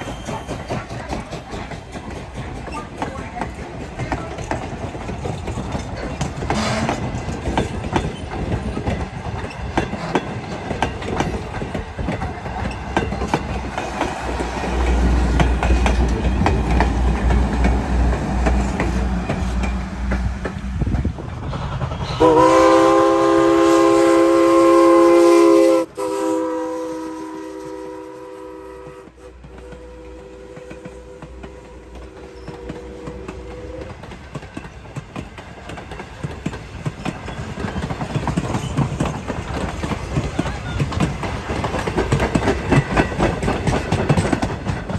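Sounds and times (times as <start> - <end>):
steam locomotive chime whistle: 0.0 - 0.9, 22.1 - 34.1
wheels clicking over rail joints: 0.0 - 22.2, 29.3 - 44.9.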